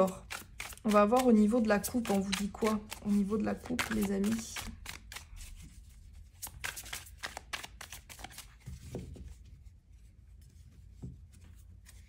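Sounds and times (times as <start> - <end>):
cards shuffling: 0.0 - 9.2
cards tapping: 0.1 - 5.3, 6.4 - 9.0.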